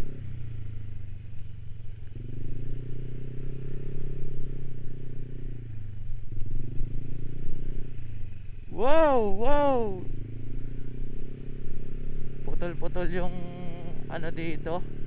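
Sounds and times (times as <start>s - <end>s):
scooter engine running: 0.0s - 15.0s.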